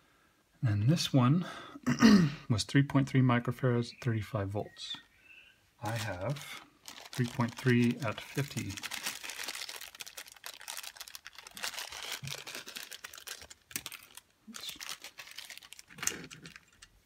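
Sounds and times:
plastic bag crinkling: 5.8 - 17.0.

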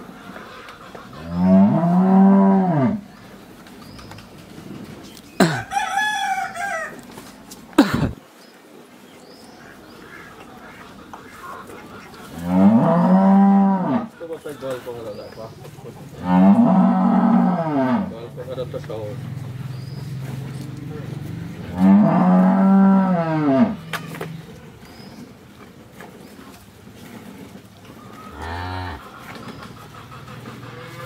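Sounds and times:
cattle mooing: 1.1 - 3.0, 12.3 - 14.2, 16.2 - 18.3, 21.6 - 24.3, 28.0 - 29.4
rooster crowing: 5.4 - 7.1.

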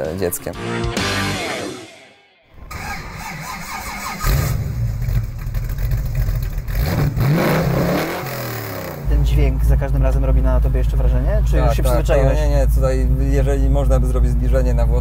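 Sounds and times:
car engine revving: 2.6 - 14.6.

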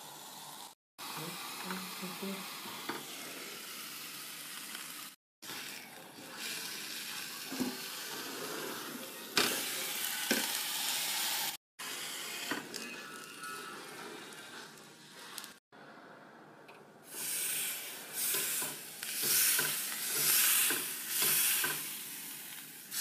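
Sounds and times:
meat sizzling on a grill: 0.0 - 12.6, 17.1 - 23.0.

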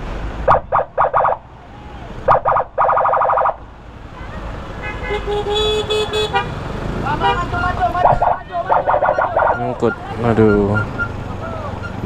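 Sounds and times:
vehicle horn beeping: 4.8 - 12.0.

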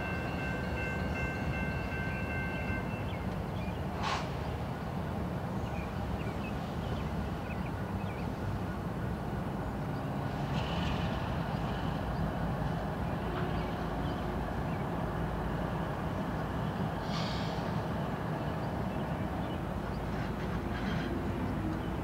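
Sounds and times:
brief hiss: 4.0 - 4.4, 17.0 - 17.8
locomotive horn: 13.2 - 14.0.

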